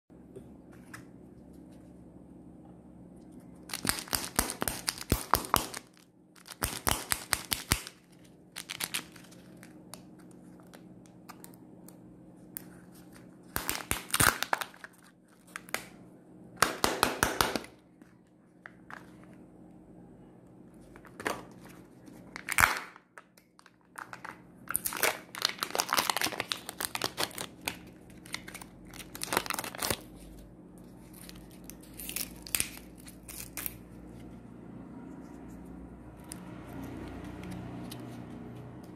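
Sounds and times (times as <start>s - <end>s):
plastic crinkling and tearing: 3.7s - 11.6s, 12.6s - 15.9s, 21.6s - 34.1s.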